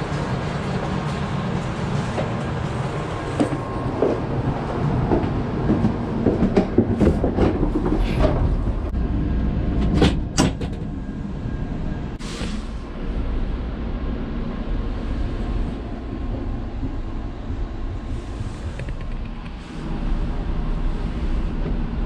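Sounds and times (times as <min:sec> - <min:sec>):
train interior rumble: 0:00.0 - 0:22.0.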